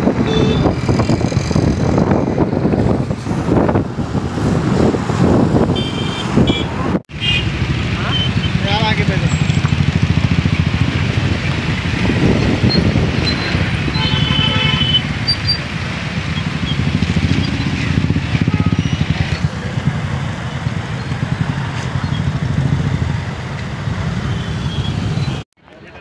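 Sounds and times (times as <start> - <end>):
traffic: 0.0 - 26.0
vehicle horn: 0.2 - 0.7, 5.8 - 8.6, 13.9 - 15.1, 18.4 - 19.0
motorcycle engine running: 7.2 - 24.4.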